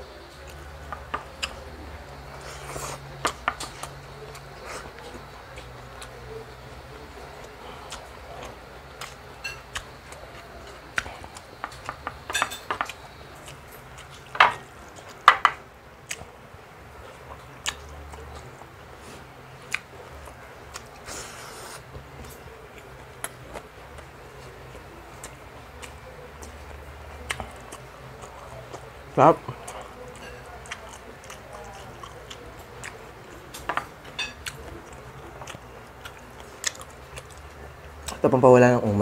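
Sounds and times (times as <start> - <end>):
cutlery clinking on a plate: 9.4 - 9.8, 12.0 - 13.0, 33.6 - 34.6.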